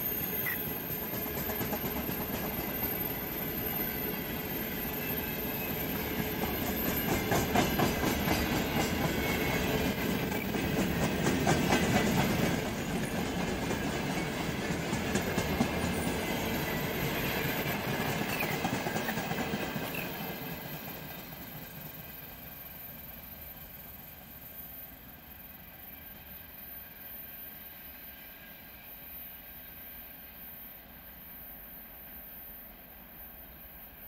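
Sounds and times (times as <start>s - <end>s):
freight train wheels clattering: 5.6s - 21.0s.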